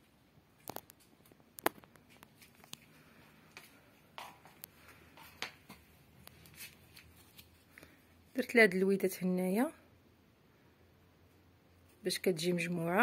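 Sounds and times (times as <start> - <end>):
faint clicks and taps: 0.6 - 6.7.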